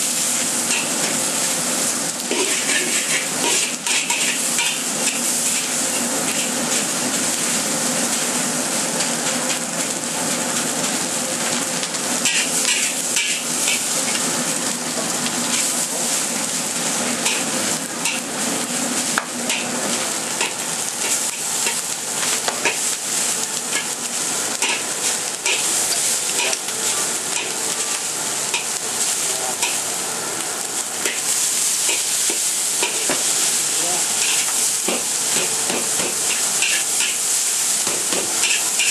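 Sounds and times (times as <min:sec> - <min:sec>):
food sizzling in a wok: 0:00.0 - 0:38.9
spatula scraping a wok: 0:02.2 - 0:07.4, 0:12.2 - 0:14.2, 0:16.8 - 0:18.3, 0:23.7 - 0:27.6, 0:34.2 - 0:38.9.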